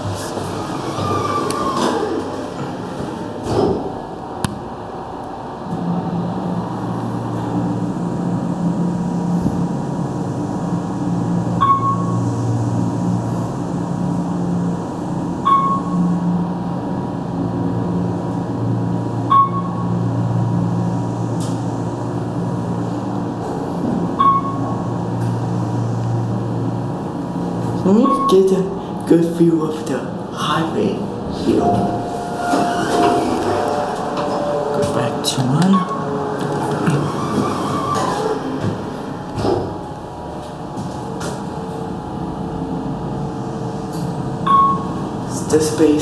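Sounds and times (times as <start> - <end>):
elevator hum: 0.0 - 46.0
elevator ding: 11.6 - 12.2, 15.4 - 16.2, 19.2 - 20.1, 24.1 - 25.4, 27.9 - 28.7, 31.4 - 38.6, 44.4 - 45.0.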